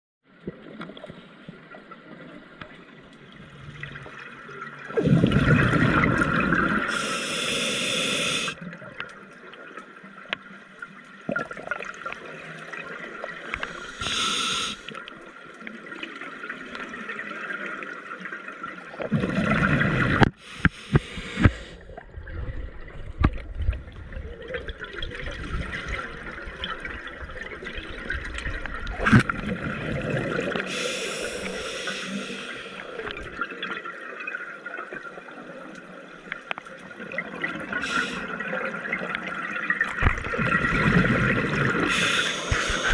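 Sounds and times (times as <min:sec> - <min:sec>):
exhaled bubbles rushing underwater: 0:00.3 - 0:07.3, 0:11.2 - 0:36.0, 0:36.8 - 0:42.9
hissing regulator inhalation: 0:06.8 - 0:08.6, 0:13.6 - 0:14.9, 0:20.3 - 0:21.8, 0:30.7 - 0:33.0, 0:37.8 - 0:38.3, 0:41.8 - 0:42.9.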